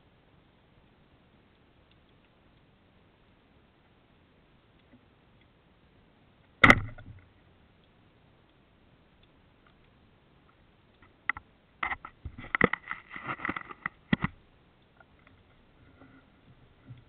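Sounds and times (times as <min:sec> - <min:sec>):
underwater clicks and knocks: 0:06.6 - 0:07.3, 0:11.0 - 0:14.4.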